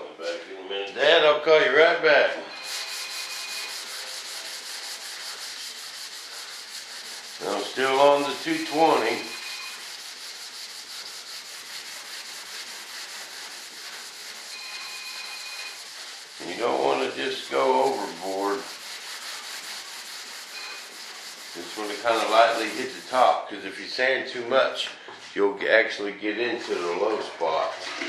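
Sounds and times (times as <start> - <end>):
sandpaper rubbing by hand: 2.6 - 23.3.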